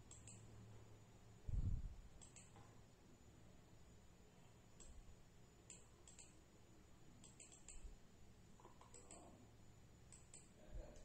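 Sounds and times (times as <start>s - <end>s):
computer mouse clicking: 0.0s - 0.5s, 2.2s - 2.7s, 4.8s - 5.0s, 5.6s - 6.4s, 7.2s - 7.9s, 8.6s - 9.3s, 10.1s - 11.0s
low room hum: 0.0s - 11.0s.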